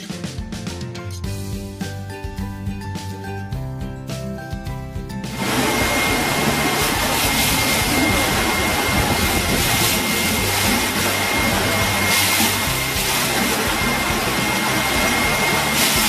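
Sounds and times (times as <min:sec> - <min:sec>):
floor grinder rushing noise: 0:05.3 - 0:16.0
high whine: 0:05.3 - 0:16.0.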